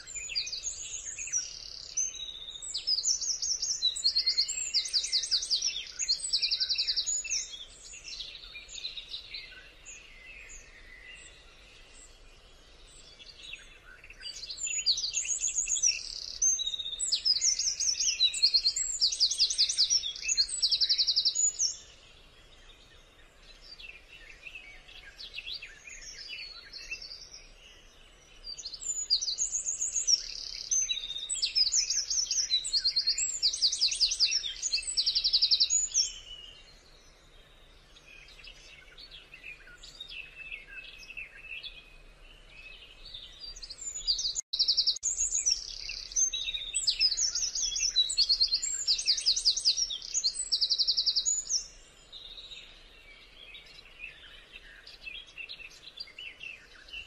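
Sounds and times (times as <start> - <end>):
birds chirping: 0.0 - 57.0
songbird trilling: 43.3 - 52.5.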